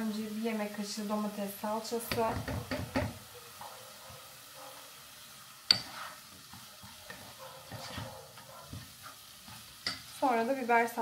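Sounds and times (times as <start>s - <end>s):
soft sizzle of frying: 0.0s - 11.0s
wooden spoon scraping pot: 5.7s - 10.3s.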